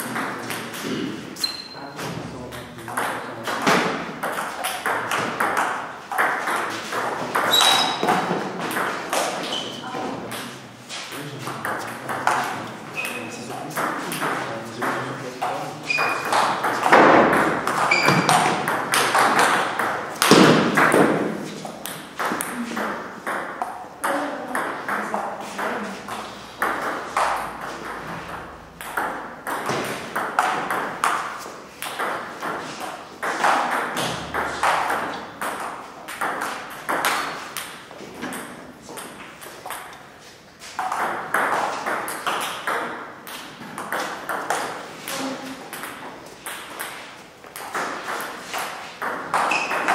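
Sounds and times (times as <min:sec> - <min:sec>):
ball bouncing on table: 0:02.8 - 0:10.6, 0:11.4 - 0:40.0, 0:40.8 - 0:49.9.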